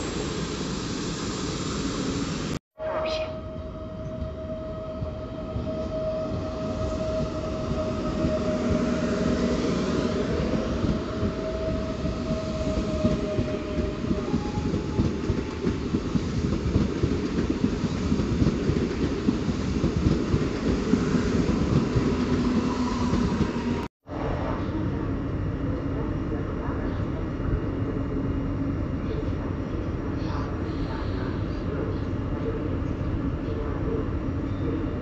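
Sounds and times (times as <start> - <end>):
train wheels rumbling on rails: 4.0 - 25.0.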